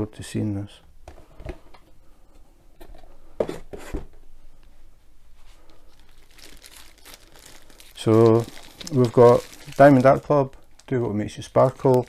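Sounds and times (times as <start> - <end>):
plastic bag rustling: 5.6 - 12.0.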